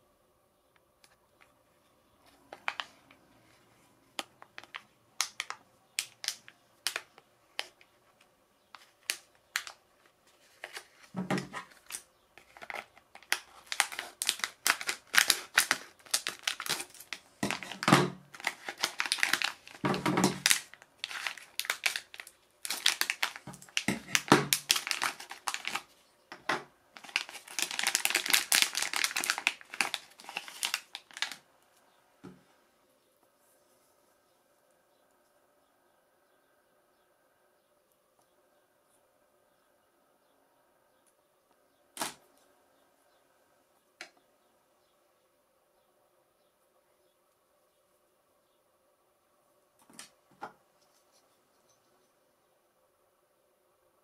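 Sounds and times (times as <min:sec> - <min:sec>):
plastic bag crinkling: 0:02.3 - 0:03.2, 0:04.1 - 0:07.8, 0:08.8 - 0:26.0, 0:27.0 - 0:31.5.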